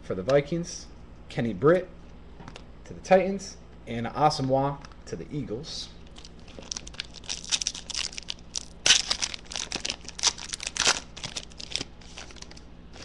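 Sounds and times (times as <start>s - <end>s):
foil wrapper tearing and crinkling: 6.2s - 13.0s.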